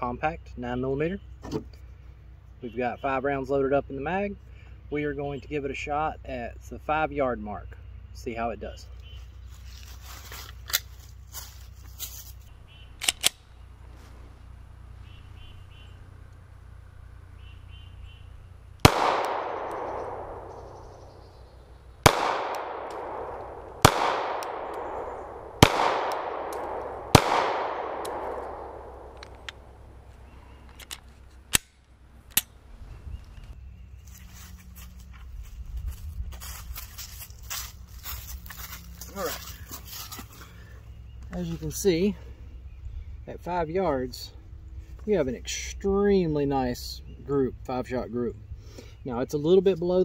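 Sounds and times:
pistol shots with echo: 18.8s - 21.2s, 22.0s - 29.3s.

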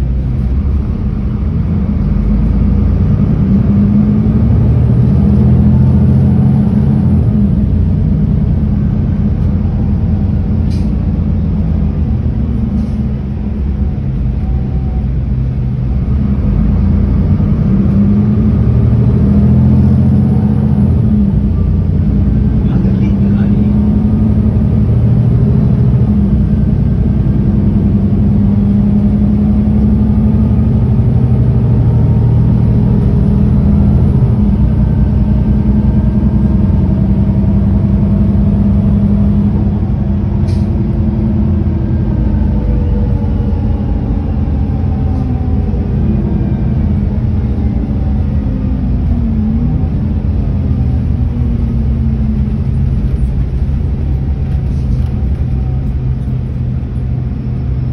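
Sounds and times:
city bus engine driving: 0.0s - 57.9s.

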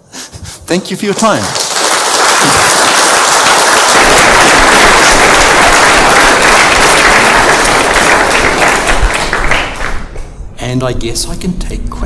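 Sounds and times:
audience applauding: 0.8s - 10.2s.

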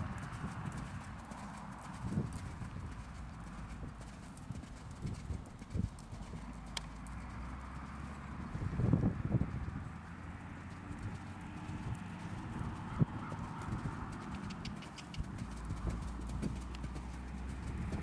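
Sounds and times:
horse hoofbeats on sand: 10.4s - 18.0s.

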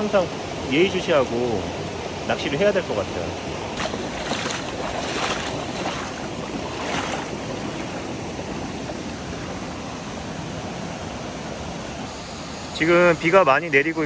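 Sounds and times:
stream rushing over pebbles: 0.0s - 12.1s
boots sloshing through water: 3.6s - 9.8s.

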